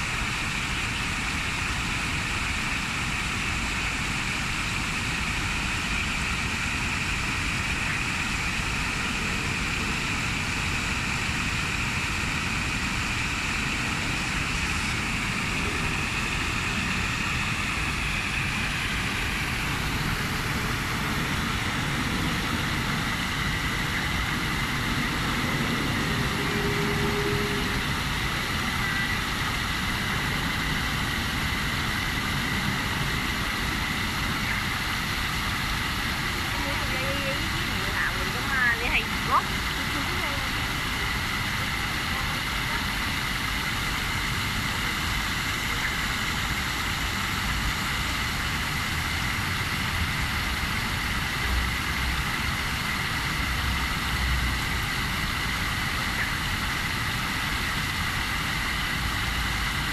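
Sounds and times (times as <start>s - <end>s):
stream bubbling: 0.0s - 59.9s.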